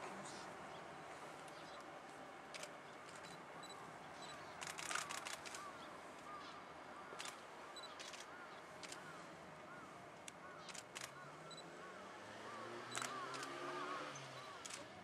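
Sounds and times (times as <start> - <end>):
camera shutters clicking: 2.5 - 3.3, 4.6 - 5.7, 7.2 - 9.1, 10.3 - 11.2, 13.0 - 13.6, 14.6 - 14.9.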